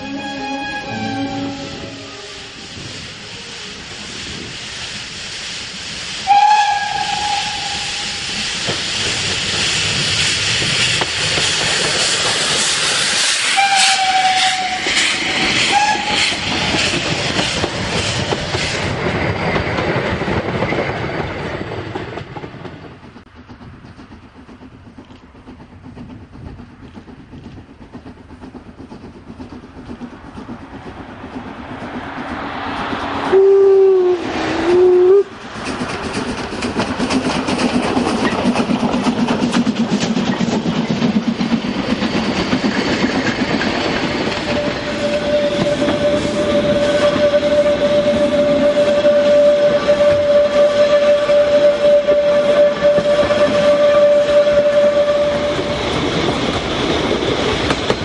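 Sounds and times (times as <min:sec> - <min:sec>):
steam whistle: 0:00.0 - 0:03.9, 0:06.2 - 0:08.5, 0:13.2 - 0:16.4, 0:33.2 - 0:35.4, 0:44.4 - 0:56.0
lower-pitched steam whistle: 0:00.0 - 0:10.5, 0:12.5 - 0:18.8, 0:33.1 - 0:35.4, 0:44.1 - 0:56.3
steam locomotive chuffing: 0:00.9 - 0:58.0
rail clatter: 0:06.3 - 0:58.0.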